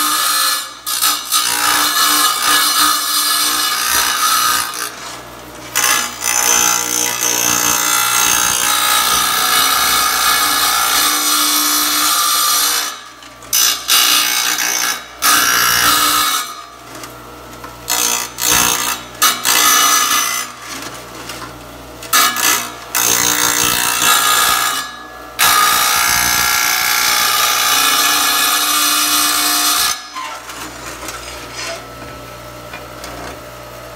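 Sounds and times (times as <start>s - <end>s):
tile saw grinding into tile: 5.8s - 16.7s.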